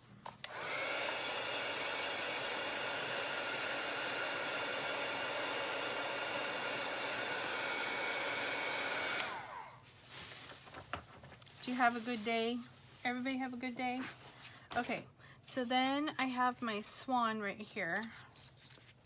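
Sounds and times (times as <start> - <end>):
heat gun fan whirring: 0.2 - 9.9.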